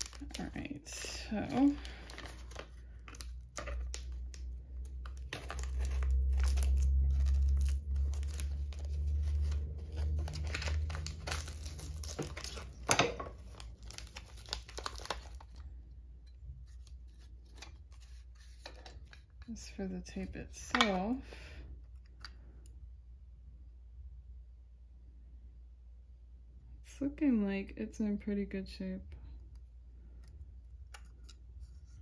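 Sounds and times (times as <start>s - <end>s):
cardboard and plastic tearing: 0.0s - 0.7s, 1.4s - 15.6s
low rumble: 0.3s - 14.2s.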